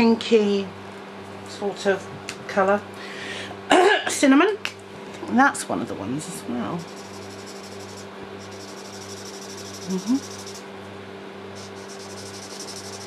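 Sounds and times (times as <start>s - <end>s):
electric fan hum: 0.0s - 13.0s
marker scratching on paper: 6.8s - 10.6s, 11.6s - 13.0s.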